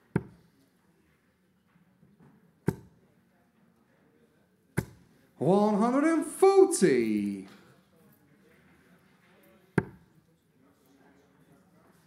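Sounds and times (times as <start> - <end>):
darts thudding into dartboard: 2.7 - 2.9, 9.8 - 10.0
person calling: 5.4 - 7.5.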